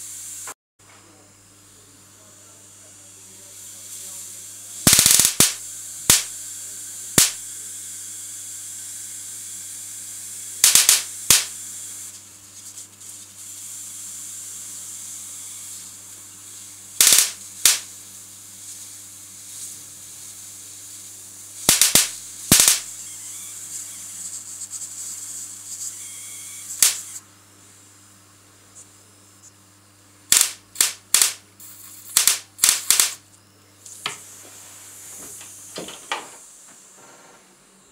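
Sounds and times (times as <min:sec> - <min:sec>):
low electrical hum: 0:00.8 - 0:37.9
high hiss: 0:01.8 - 0:07.4, 0:10.6 - 0:27.3, 0:30.3 - 0:33.2
electric sparks cracking: 0:04.8 - 0:06.4, 0:07.1 - 0:07.5, 0:10.6 - 0:13.2, 0:17.0 - 0:18.0, 0:21.5 - 0:27.2, 0:30.3 - 0:33.2.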